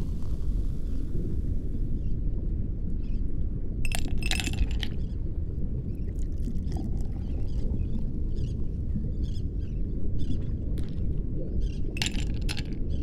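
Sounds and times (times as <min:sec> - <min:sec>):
glasses clinking: 0:03.9 - 0:05.0, 0:12.0 - 0:12.8.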